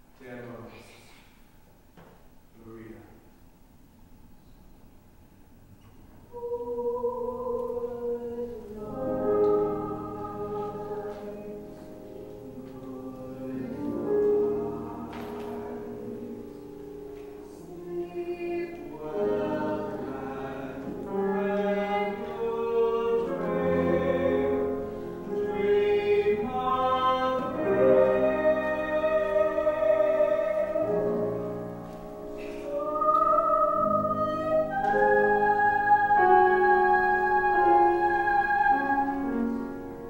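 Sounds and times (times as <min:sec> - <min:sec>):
woman and man singing duet: 0:06.3 - 0:16.8, 0:17.4 - 0:31.5, 0:32.4 - 0:39.6
piano accompaniment: 0:06.4 - 0:40.0.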